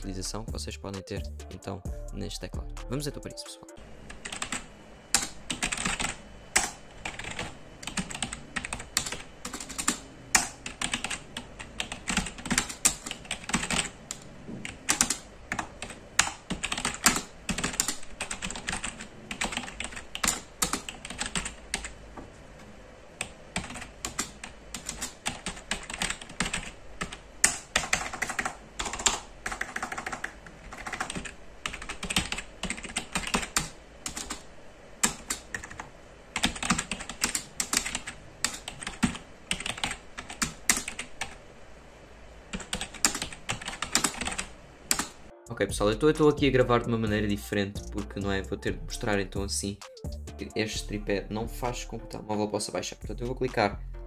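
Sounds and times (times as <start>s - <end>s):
keyboard typing clatter: 4.2s - 22.0s, 23.2s - 34.4s, 35.0s - 41.4s, 42.5s - 45.2s.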